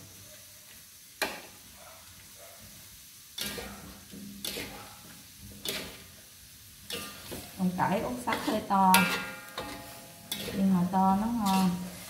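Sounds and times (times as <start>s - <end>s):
food sizzling in wok: 0.0s - 12.0s
metal spatula knocking wok: 3.4s - 4.8s, 5.6s - 6.0s, 6.8s - 12.0s.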